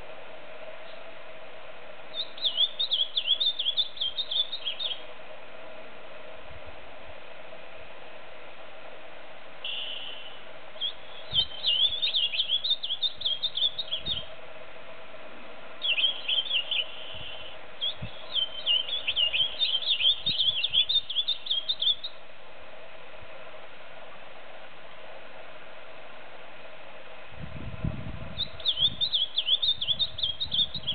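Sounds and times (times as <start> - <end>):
bird singing warbling song: 2.1 - 5.0, 9.6 - 14.3, 15.8 - 22.2, 28.4 - 30.9.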